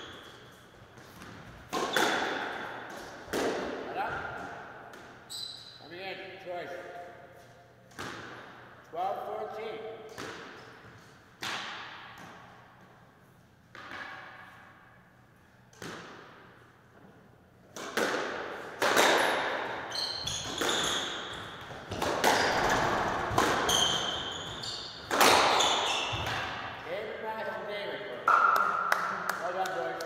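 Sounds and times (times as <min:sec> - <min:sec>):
squash ball cracks off rackets: 0:01.0 - 0:03.8, 0:11.4 - 0:12.5, 0:15.7 - 0:16.4, 0:17.7 - 0:24.2, 0:25.0 - 0:26.6
shoes squeaking on wooden floor: 0:19.9 - 0:22.8, 0:23.6 - 0:26.3.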